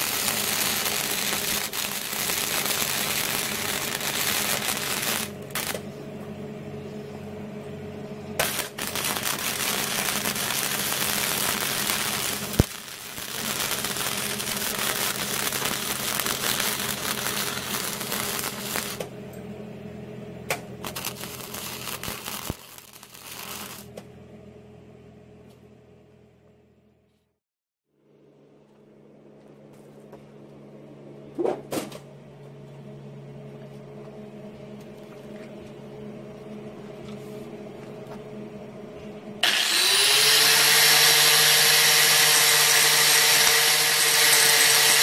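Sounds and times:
welder arc crackling: 0:00.0 - 0:05.8, 0:08.4 - 0:19.1, 0:20.5 - 0:24.0, 0:39.4 - 0:45.0
steady low hum: 0:00.0 - 0:27.3, 0:27.9 - 0:39.4.

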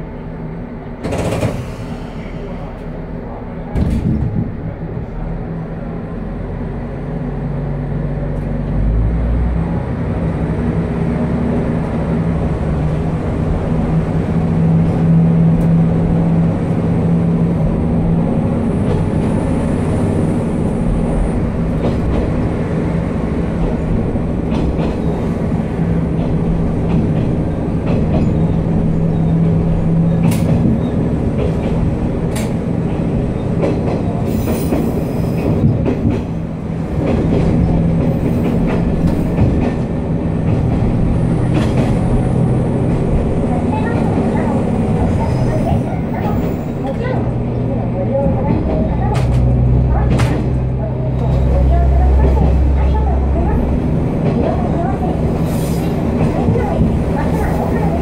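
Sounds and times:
diesel railcar engine droning: 0:00.0 - 0:58.0
rail noise: 0:00.0 - 0:58.0
wheels clacking over rail joints: 0:23.3 - 0:58.0.

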